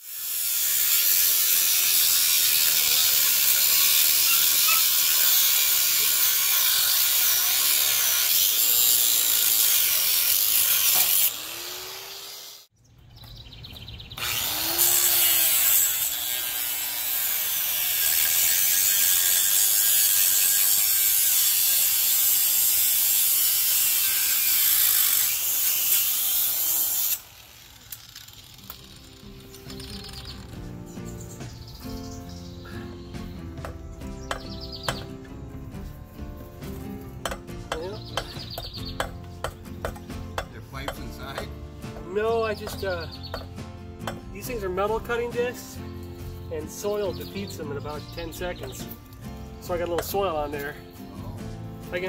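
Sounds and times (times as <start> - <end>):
angle grinder cutting steel: 0.0 - 12.7, 14.2 - 30.4.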